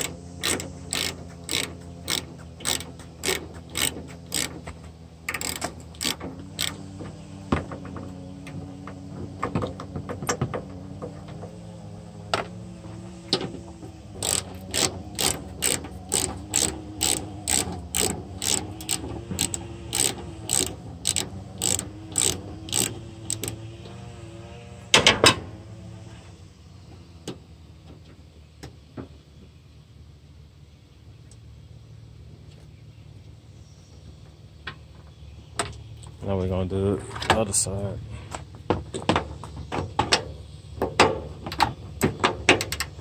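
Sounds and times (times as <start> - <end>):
hand ratchet clicking: 0.0 - 6.8, 14.2 - 23.6.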